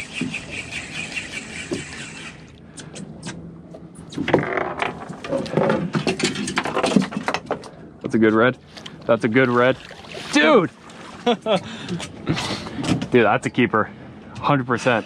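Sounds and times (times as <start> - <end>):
fishing reel whirring: 0.0 - 2.5.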